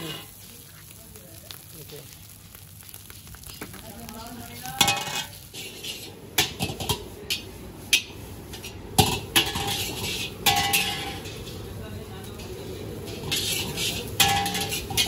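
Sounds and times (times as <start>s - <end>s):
metal ladle scraping a wok: 0.0s - 0.4s, 4.8s - 11.6s, 13.0s - 15.0s.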